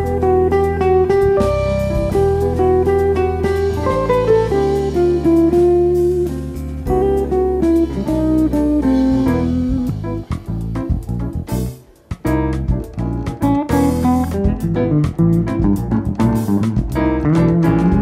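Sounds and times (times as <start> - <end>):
guitar melody: 0.0 - 18.0
jazz quartet playing: 0.0 - 18.0.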